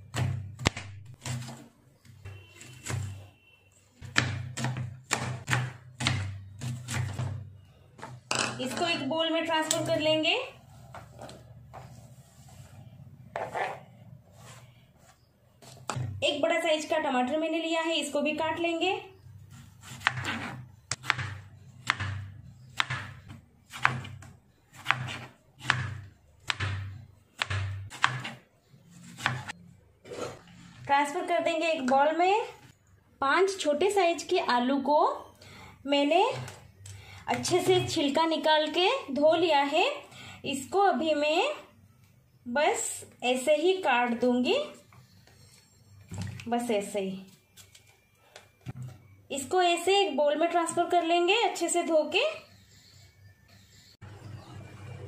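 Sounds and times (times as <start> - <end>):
knife chopping on cutting board: 19.8 - 24.2, 24.8 - 28.4, 29.1 - 29.5
knife slicing tomato on board: 29.0 - 29.5.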